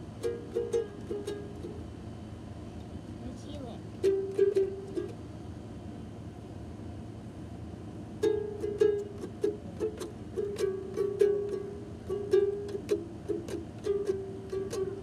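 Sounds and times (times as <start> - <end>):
toy guitar strummed: 8.2 - 15.0.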